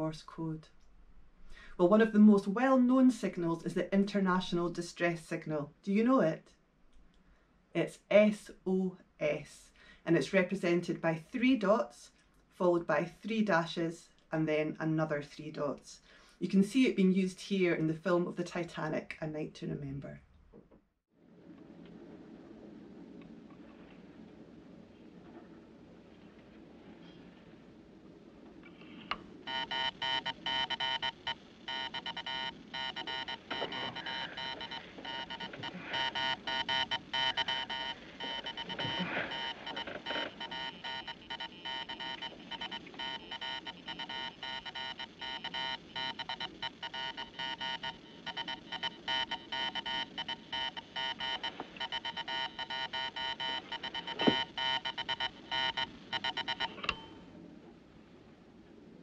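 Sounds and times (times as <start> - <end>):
morse code buzzing tone: 29.4 - 57.2.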